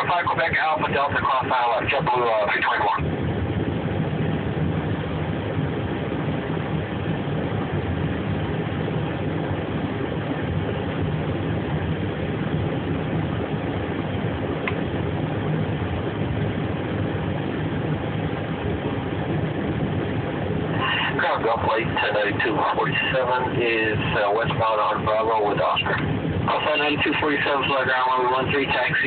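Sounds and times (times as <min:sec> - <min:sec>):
machinery drone and hiss: 0:19.7 - 0:29.0.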